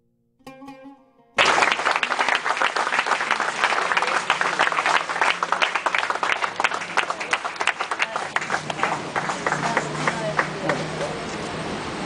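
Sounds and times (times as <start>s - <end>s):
plucked string notes: 0.0s - 1.6s
people applauding: 1.4s - 11.3s.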